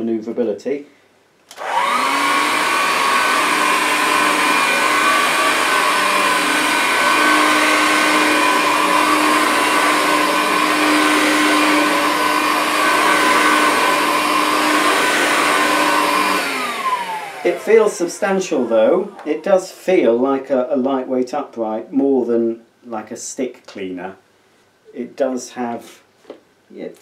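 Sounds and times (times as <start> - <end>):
vacuum cleaner on carpet: 1.5 - 19.3.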